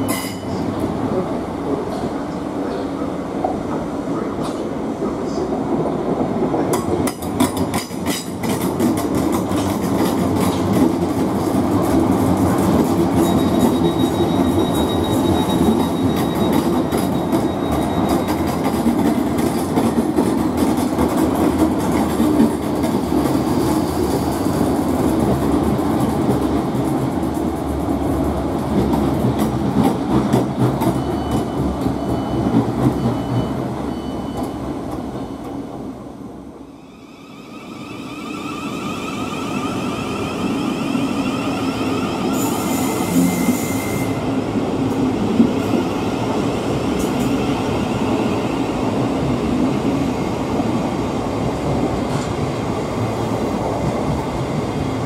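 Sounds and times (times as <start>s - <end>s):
train wheels rumbling: 0.0s - 35.9s.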